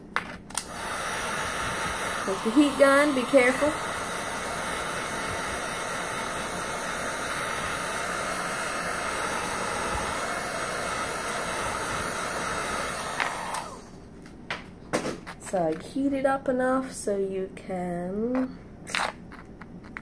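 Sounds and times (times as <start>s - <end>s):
heat gun blowing air: 0.6s - 14.1s.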